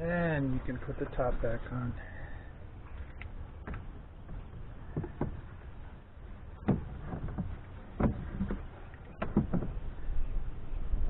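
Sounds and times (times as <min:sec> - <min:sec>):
dull plastic knocks and clunks: 0:03.6 - 0:05.8, 0:06.6 - 0:09.8.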